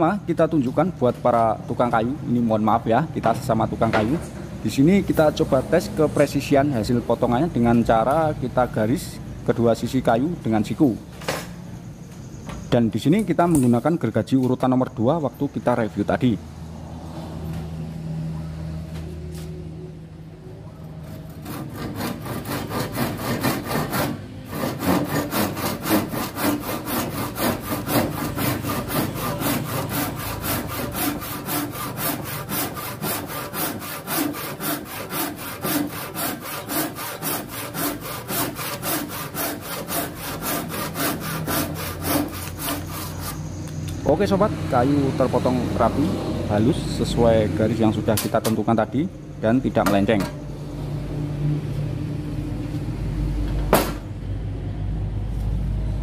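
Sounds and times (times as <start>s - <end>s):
hand saw cutting wood: 21.0s - 43.5s.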